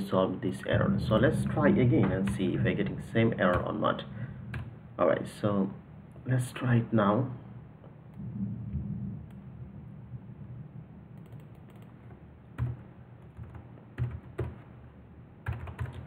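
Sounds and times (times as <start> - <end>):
low steady hum: 0.0 - 16.0
computer keyboard keystrokes: 11.2 - 14.7, 15.4 - 16.0.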